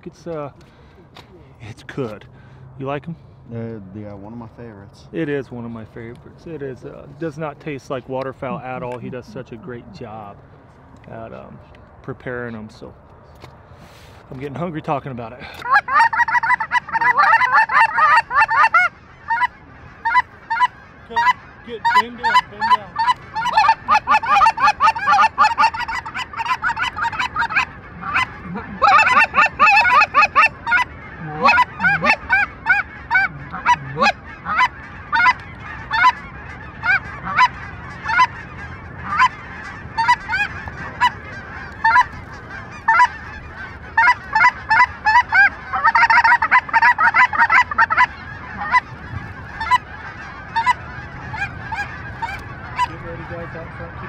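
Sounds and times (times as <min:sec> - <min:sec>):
geese honking: 0:04.2 - 0:10.4, 0:13.8 - 0:54.0.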